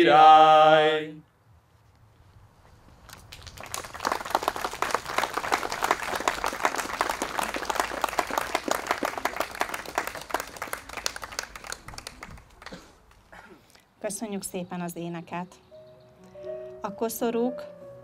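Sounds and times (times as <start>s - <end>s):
audience applauding: 3.2s - 13.3s.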